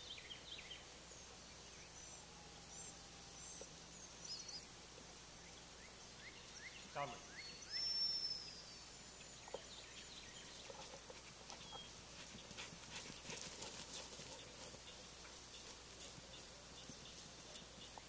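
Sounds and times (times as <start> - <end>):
faint bird chirps: 0.0 - 12.6
light rustling crackle: 10.4 - 18.0.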